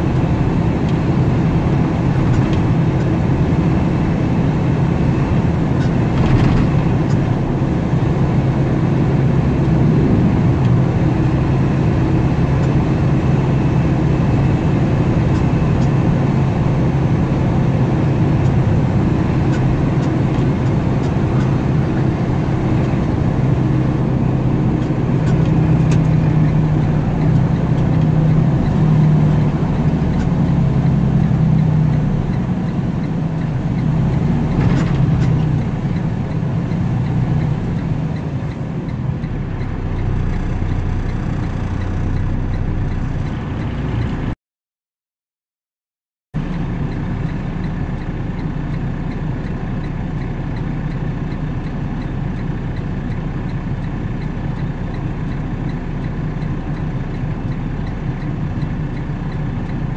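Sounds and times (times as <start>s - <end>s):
car engine hum: 0.0s - 44.4s, 46.4s - 59.9s
tyre and road noise: 0.0s - 44.4s.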